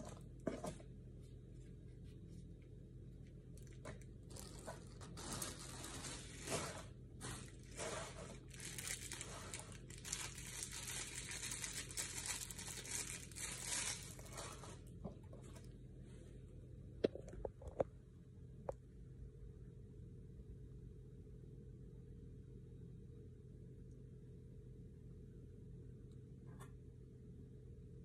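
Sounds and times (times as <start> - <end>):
plastic bag crinkling: 3.6 - 15.0.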